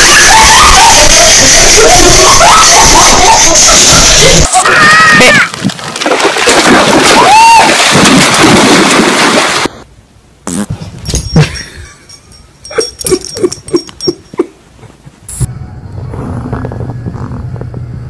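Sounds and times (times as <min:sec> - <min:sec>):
dog splashing through water: 0:05.6 - 0:09.7.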